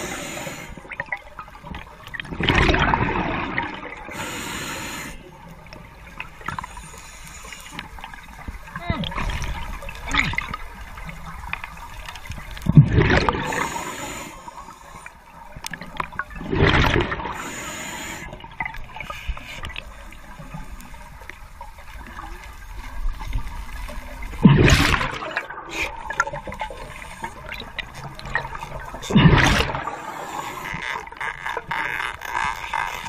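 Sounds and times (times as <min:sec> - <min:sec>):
low murmur of water: 0:00.0 - 0:33.0
exhaled bubbles gushing: 0:01.0 - 0:04.1, 0:08.1 - 0:13.9, 0:15.7 - 0:17.4, 0:22.0 - 0:31.7
inhaled air hiss: 0:04.1 - 0:05.2.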